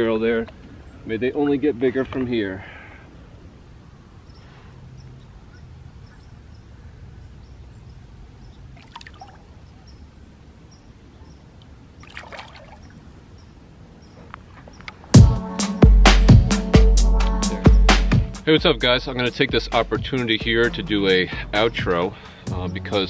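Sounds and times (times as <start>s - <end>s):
water trickling and splashing: 8.6s - 13.7s.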